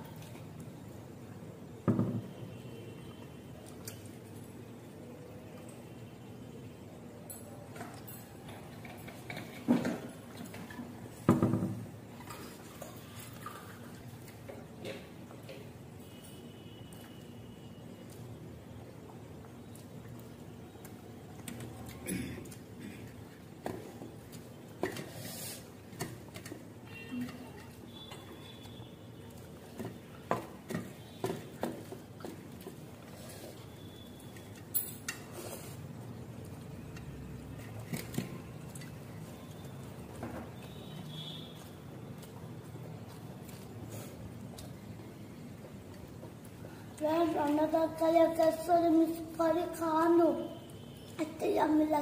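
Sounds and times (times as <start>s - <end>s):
eating by hand from steel plates: 7.2s - 11.3s, 11.9s - 51.8s
fingers mixing rice on plates: 34.4s - 46.7s.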